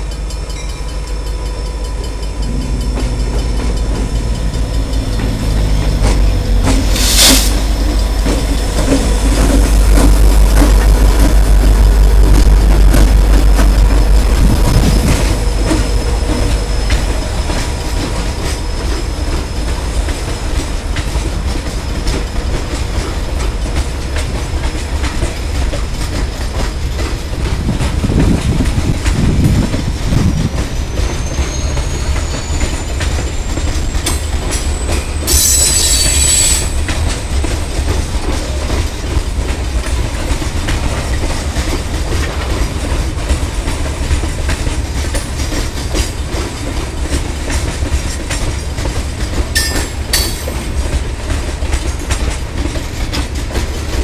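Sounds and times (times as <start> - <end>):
train wheels rumbling on rails: 0.0 - 54.0
wheels clacking over rail joints: 0.0 - 54.0
high wheel squeal: 14.2 - 20.8, 30.1 - 37.5
high-pitched screech: 35.3 - 36.8.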